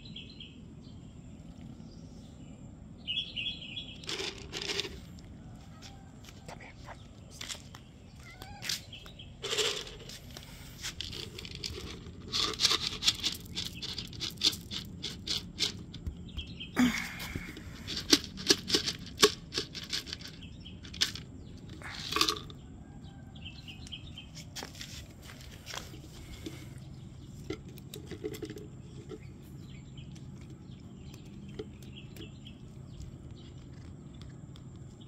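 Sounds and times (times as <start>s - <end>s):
cats crunching dry kibble: 4.0s - 22.6s, 24.3s - 35.0s
scuffs on concrete: 5.6s - 11.4s, 23.7s - 26.8s.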